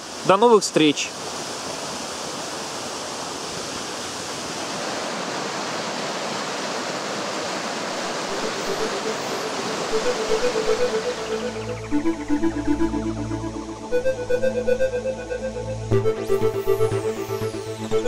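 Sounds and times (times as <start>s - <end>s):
stream water rushing: 0.0s - 14.0s
faint music: 8.1s - 18.0s.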